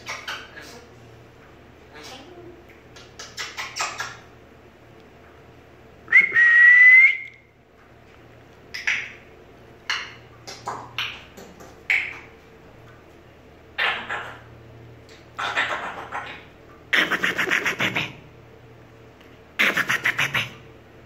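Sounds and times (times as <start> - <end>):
long whistle: 6.1 - 7.4.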